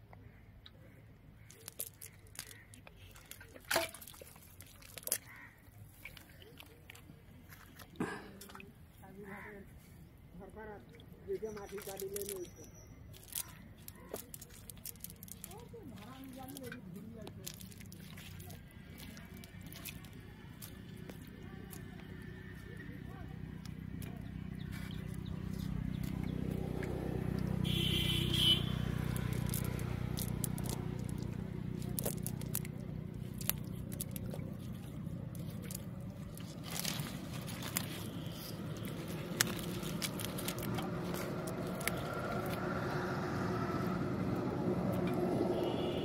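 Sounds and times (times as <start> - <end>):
clicks and scrapes from wet fishing net: 1.4 - 8.7, 11.6 - 22.9, 23.6 - 27.5, 28.8 - 43.4
engine humming: 13.2 - 46.0.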